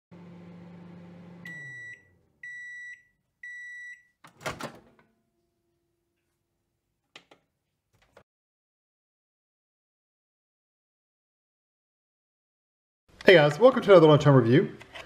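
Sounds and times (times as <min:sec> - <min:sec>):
microwave oven humming: 0:00.1 - 0:02.8.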